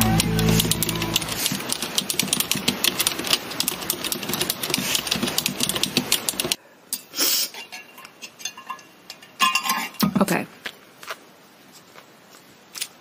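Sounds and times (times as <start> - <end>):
typing on computer keyboard: 0.2 - 6.6.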